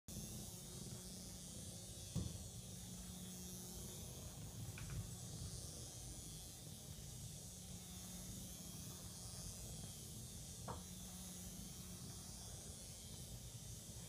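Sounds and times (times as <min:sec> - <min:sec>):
toy motor buzzing on wooden floor: 0:00.1 - 0:14.0
thump: 0:02.1 - 0:02.4.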